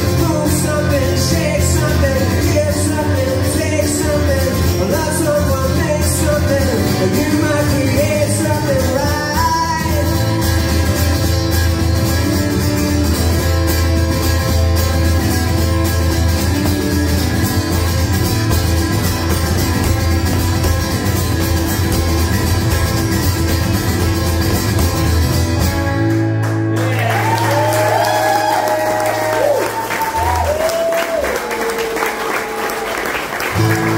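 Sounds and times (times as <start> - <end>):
person singing: 0.0 - 10.4
electro-acoustic guitar strumming: 0.0 - 30.5, 33.4 - 33.9
audience applause and cheers: 26.3 - 33.9.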